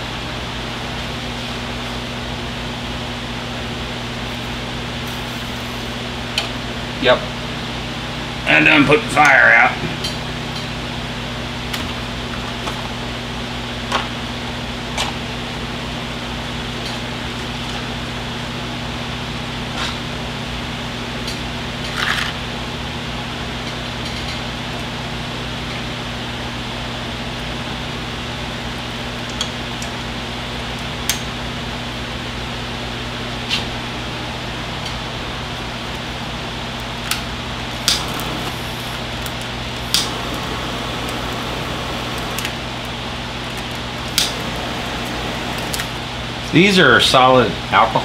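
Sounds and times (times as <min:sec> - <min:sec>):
electric hum and hiss: 0:00.0 - 0:12.3, 0:33.3 - 0:48.0.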